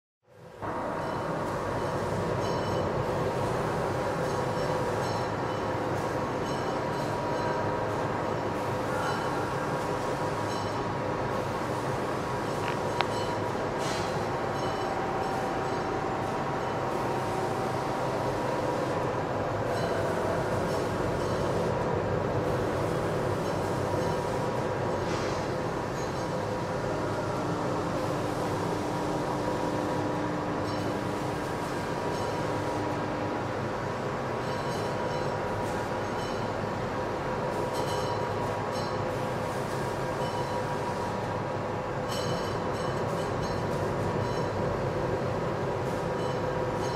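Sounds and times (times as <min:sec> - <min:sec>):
factory machinery humming: 0:00.4 - 0:46.9
high-pitched machine squeals: 0:08.7 - 0:10.9, 0:25.9 - 0:33.2, 0:34.4 - 0:36.6, 0:42.1 - 0:44.6.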